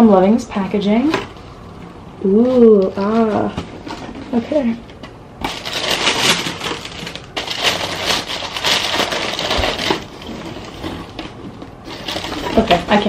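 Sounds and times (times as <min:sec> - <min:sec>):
tissue paper rustling: 0:05.4 - 0:13.0.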